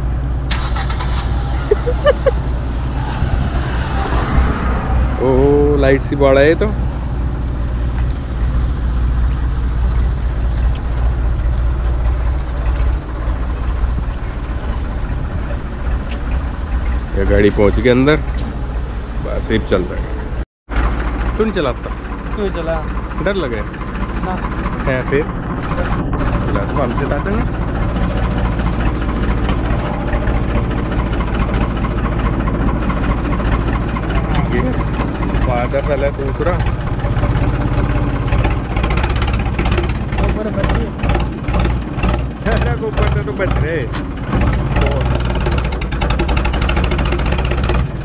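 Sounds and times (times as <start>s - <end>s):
tractor engine idling: 0.0s - 48.0s.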